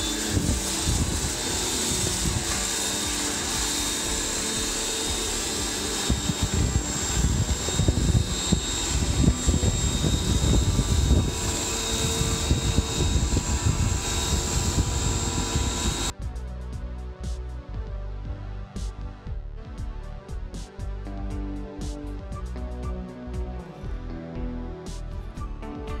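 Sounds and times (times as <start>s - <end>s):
pressure washer running: 0.0s - 16.1s
water jets spraying on metal: 0.0s - 16.1s.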